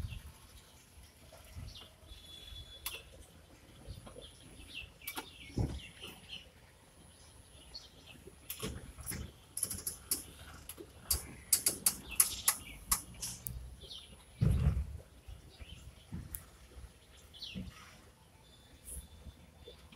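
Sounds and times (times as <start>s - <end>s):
birds chirping: 1.5s - 19.9s
sharp clicks: 9.6s - 13.6s.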